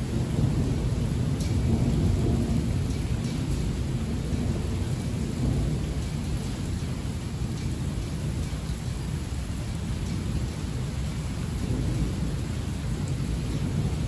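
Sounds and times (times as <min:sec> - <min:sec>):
thunder rumbling: 0:00.0 - 0:08.4, 0:11.4 - 0:14.0
heavy rain: 0:00.0 - 0:14.0.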